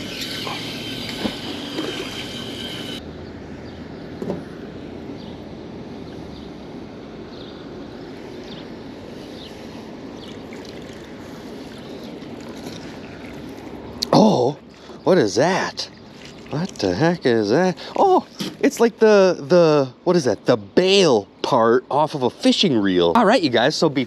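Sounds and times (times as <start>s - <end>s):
water lapping beside dock: 0.0s - 3.0s, 9.1s - 19.0s.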